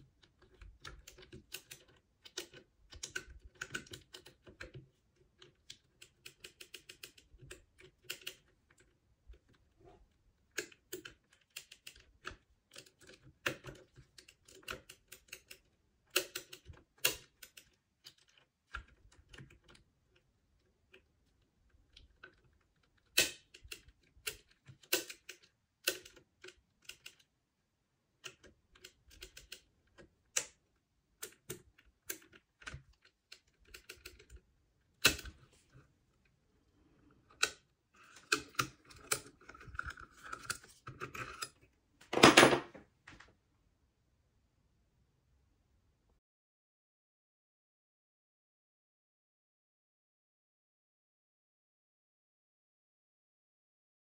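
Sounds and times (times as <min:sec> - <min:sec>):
lock pick clicking and scraping: 0:37.1 - 0:41.6.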